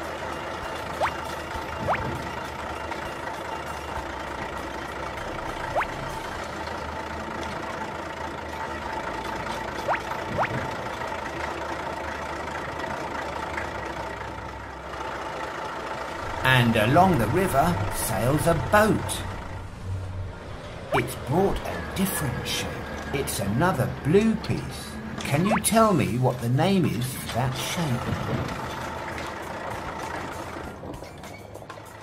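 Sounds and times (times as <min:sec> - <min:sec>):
cartoon vehicle engine effects: 0:00.0 - 0:11.8, 0:16.2 - 0:28.8
background music: 0:00.0 - 0:13.1, 0:16.1 - 0:32.0.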